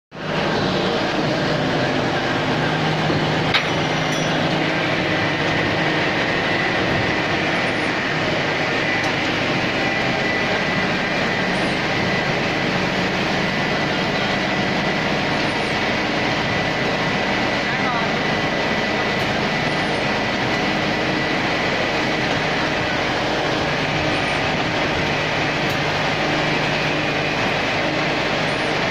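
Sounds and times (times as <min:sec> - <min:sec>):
thin high whine: 0:00.1 - 0:28.9
crushing machine running: 0:00.2 - 0:28.9.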